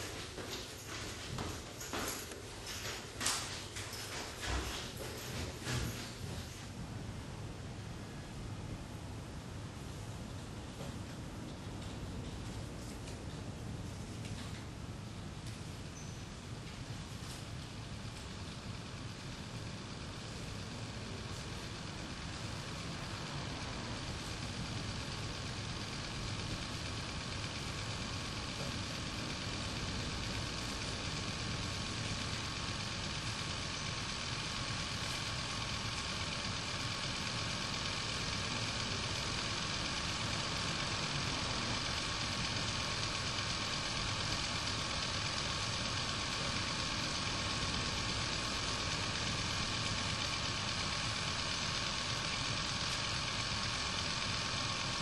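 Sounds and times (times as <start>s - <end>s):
machine-like drone with hiss: 14.8s - 55.0s.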